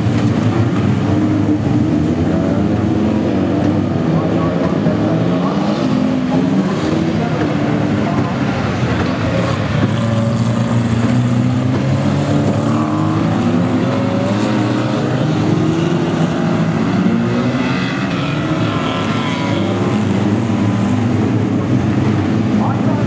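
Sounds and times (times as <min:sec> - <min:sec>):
race cars racing past: 0:00.0 - 0:23.0.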